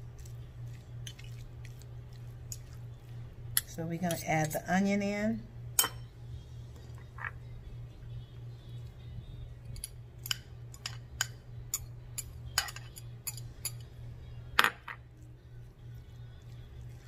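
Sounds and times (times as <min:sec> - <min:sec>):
steady low hum: 0:00.0 - 0:17.0
fork clinking against glass bowl: 0:05.8 - 0:06.1, 0:09.7 - 0:13.9.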